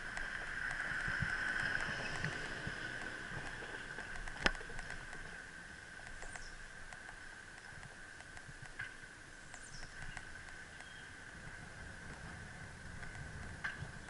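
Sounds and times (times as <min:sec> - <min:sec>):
bicycle clicks and rattles: 0:00.0 - 0:14.0.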